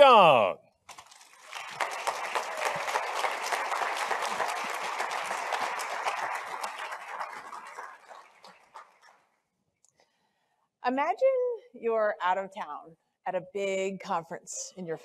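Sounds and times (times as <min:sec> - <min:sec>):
audience applauding: 0:01.2 - 0:09.3.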